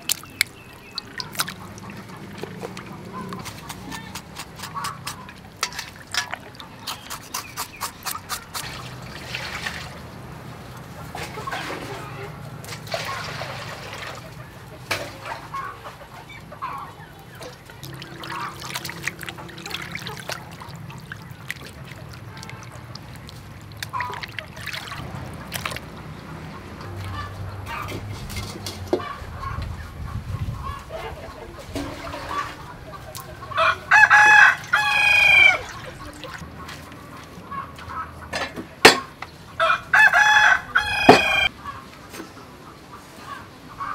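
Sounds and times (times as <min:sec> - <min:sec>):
water splashing in a metal bowl: 0:00.0 - 0:15.6, 0:16.6 - 0:28.8, 0:31.7 - 0:36.5
chickens clucking: 0:00.0 - 0:43.9.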